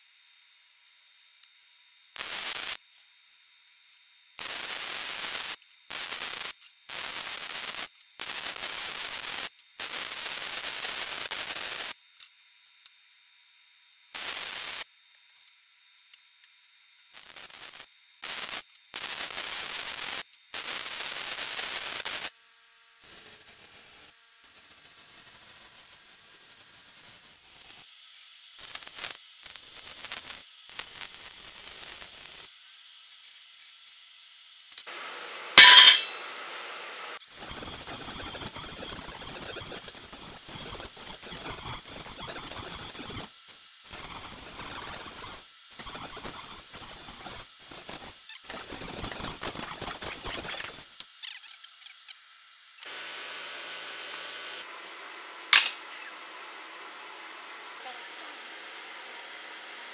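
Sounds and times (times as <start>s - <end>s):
welding arc crackling and hissing: 2.0s - 2.9s, 4.3s - 12.0s, 14.1s - 15.0s, 17.0s - 54.7s, 55.5s - 56.1s.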